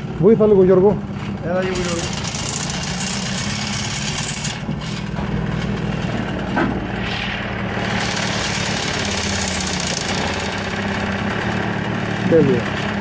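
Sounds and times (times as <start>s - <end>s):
outboard motor idling: 0.0s - 6.9s, 7.6s - 13.0s.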